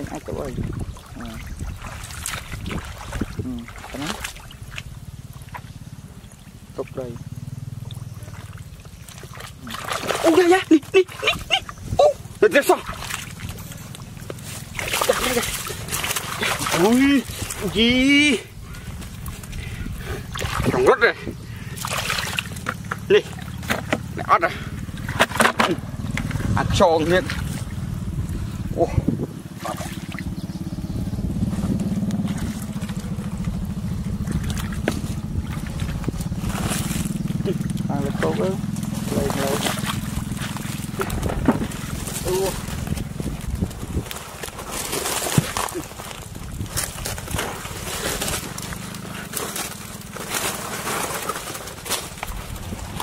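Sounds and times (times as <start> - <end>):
low rumbling microphone noise: 0.0 - 53.0
small engine running: 3.4 - 53.0
barefoot footsteps in mud: 8.0 - 17.8, 21.5 - 28.0, 31.3 - 53.0.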